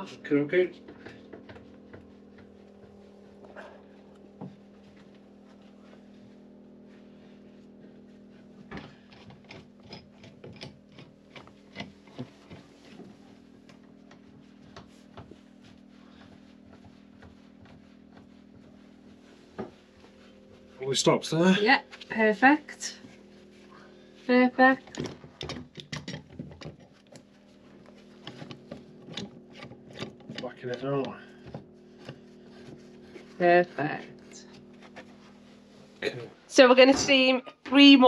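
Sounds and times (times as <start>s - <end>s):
steady low hum: 0.0s - 38.0s
clamps clicking and knocking: 8.8s - 12.6s, 24.9s - 26.8s.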